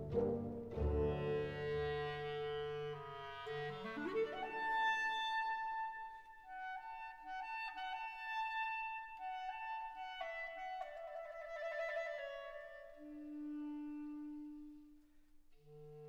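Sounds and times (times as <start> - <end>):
slow instrumental music: 0.0 - 3.2.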